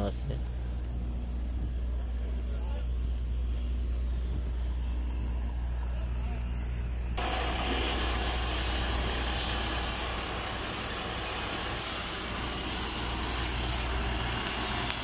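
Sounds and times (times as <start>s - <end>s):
low even hum: 0.0s - 15.0s
steady rushing hiss: 0.0s - 15.0s.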